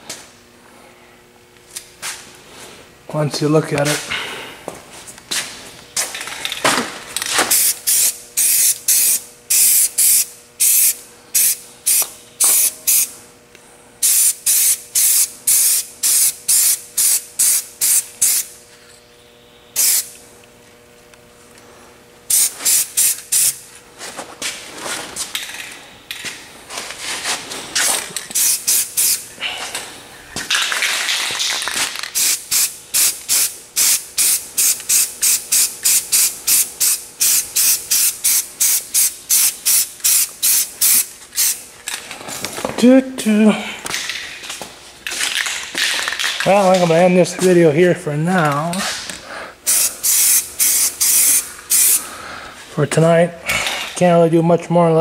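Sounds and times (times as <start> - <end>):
spray paint hissing bursts: 7.5 - 13.1, 14.0 - 18.5, 19.8 - 20.1, 22.3 - 23.6, 28.3 - 29.3, 32.1 - 41.7, 49.6 - 52.0.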